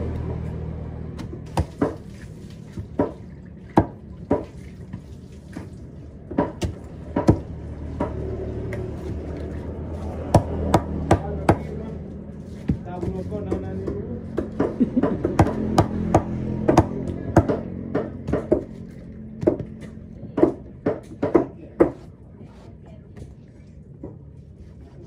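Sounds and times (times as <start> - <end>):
knife chopping fish on board: 1.2 - 2.1, 6.3 - 9.2, 10.0 - 11.7, 12.6 - 22.0.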